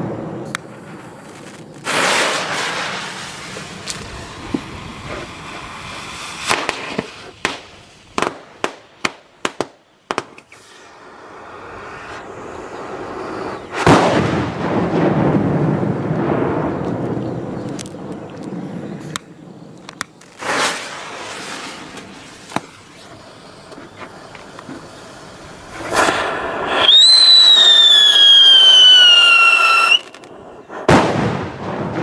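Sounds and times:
firecracker loud bangs: 0.0 - 5.3, 13.7 - 16.8, 25.8 - 32.0
firecracker sharp cracks: 0.0 - 10.8, 13.7 - 18.3, 19.0 - 23.0, 25.7 - 32.0.

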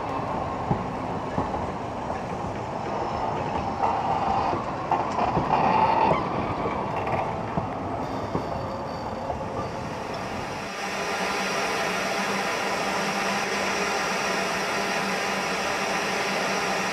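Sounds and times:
train carriages rumbling past: 0.0 - 16.9.

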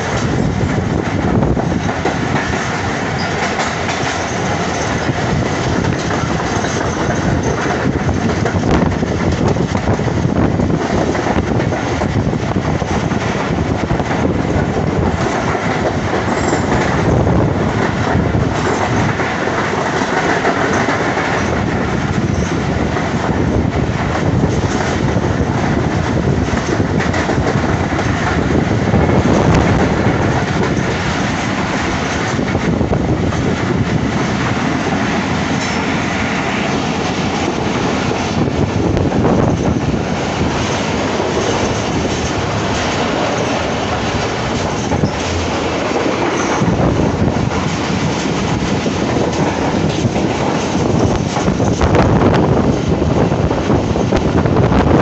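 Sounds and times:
train wheels rattling on rails: 0.0 - 55.0.

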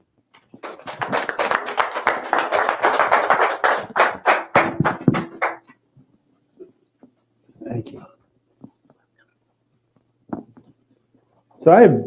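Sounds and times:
people applauding: 0.6 - 5.7.

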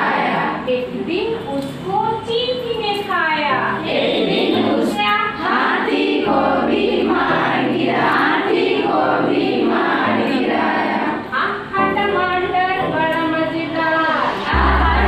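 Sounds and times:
women singing a rhyme together: 3.8 - 11.3
low held notes: 14.5 - 15.0.

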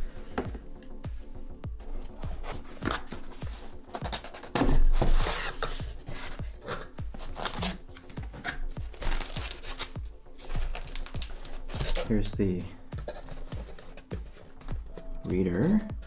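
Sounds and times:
quiet background music: 0.0 - 16.0
cardboard box scuffing and rustling: 2.0 - 9.8
paper insert rustling: 2.0 - 15.9.

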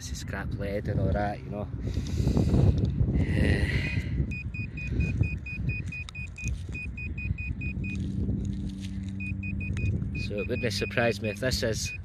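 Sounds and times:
pinpointer probe beeping rapidly: 4.2 - 8.0, 9.2 - 12.0
rustling of soil: 7.8 - 9.3.

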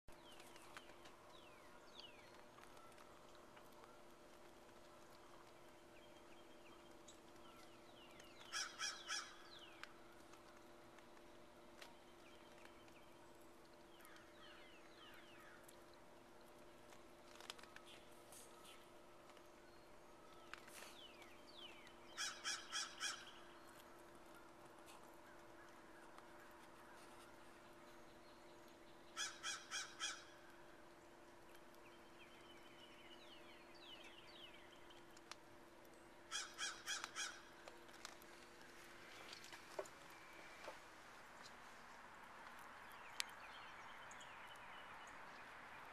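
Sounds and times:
low steady hum: 0.1 - 45.9
crow cawing: 8.5 - 9.4, 22.2 - 23.4, 29.2 - 30.4, 36.3 - 37.5
downward-sliding bird calls: 8.5 - 9.4, 22.1 - 23.5, 29.2 - 30.4, 36.3 - 37.5.

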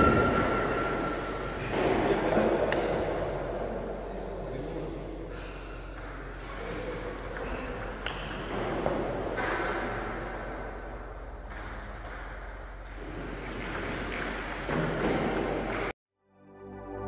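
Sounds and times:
steady hall hum: 0.0 - 15.9.

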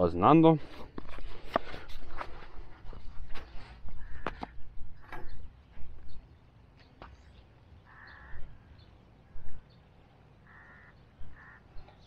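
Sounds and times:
harsh bird call: 7.8 - 9.0, 10.4 - 12.0.

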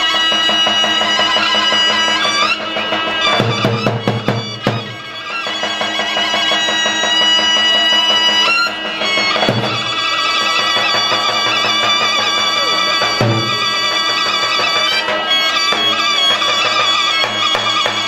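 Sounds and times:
reedy wind instrument melody: 0.0 - 18.0
large drum beating: 2.2 - 7.7, 8.7 - 9.9, 13.0 - 13.6.

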